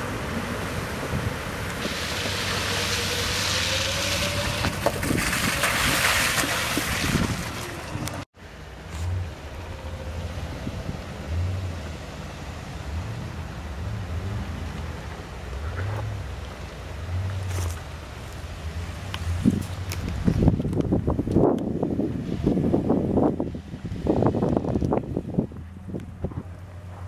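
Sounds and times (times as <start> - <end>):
water splashing and spray hiss: 0.2 - 8.2.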